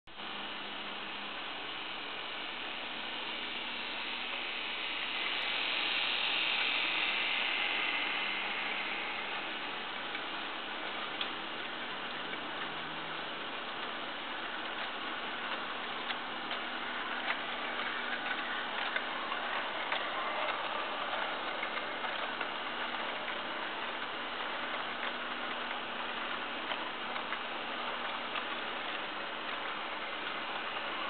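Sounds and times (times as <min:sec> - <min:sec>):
model train motor whirring: 0:01.3 - 0:31.0
wheels clicking over rail joints: 0:06.6 - 0:31.0.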